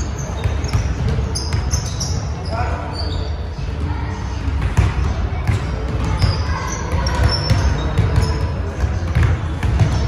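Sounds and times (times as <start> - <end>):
players' voices: 0.0 - 10.0
sneaker squeaks: 0.0 - 10.0
basketball bouncing on wooden floor: 4.6 - 10.0.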